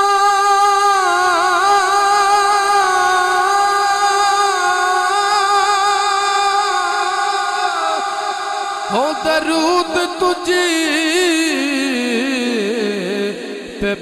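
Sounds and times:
man singing long note: 0.0 - 14.0.

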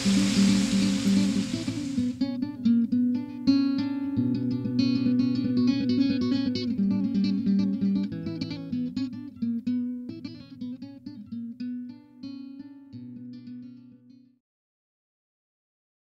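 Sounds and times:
plucked guitar music: 0.0 - 14.3.

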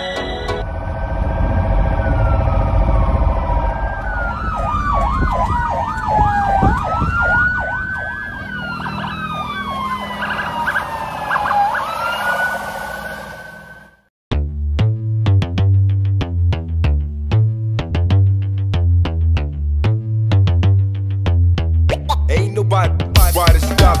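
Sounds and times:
siren fast warble: 0.0 - 14.1
siren slow wail: 0.0 - 14.1
low rumble: 0.6 - 8.0.

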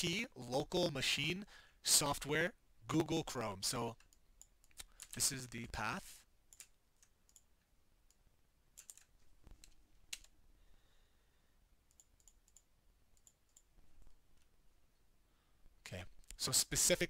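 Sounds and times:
computer mouse and keyboard clicks: 6.5 - 8.2, 8.8 - 10.4, 11.9 - 13.7.

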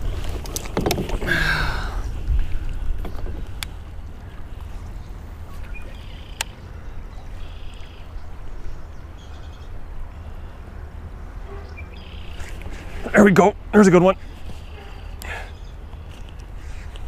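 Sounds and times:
water lapping against kayak: 0.0 - 8.9
wind rumbling on microphone: 0.0 - 10.1.

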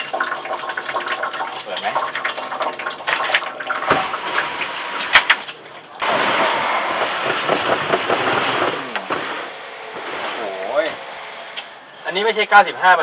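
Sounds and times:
water draining: 0.0 - 9.1
steady rushing noise: 6.0 - 12.5.

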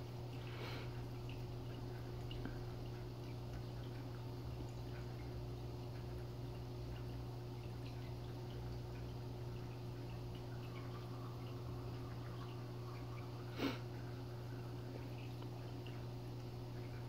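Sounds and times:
aquarium equipment humming: 0.0 - 17.0
faint water drips: 0.0 - 17.0.

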